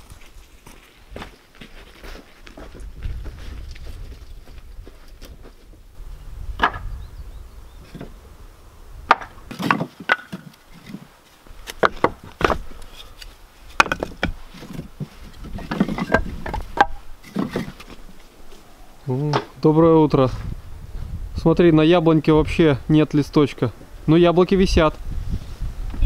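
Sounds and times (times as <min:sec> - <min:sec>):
split wood knocking and clattering: 0:06.6 - 0:06.9, 0:09.1 - 0:11.0, 0:11.6 - 0:12.6, 0:13.7 - 0:18.0.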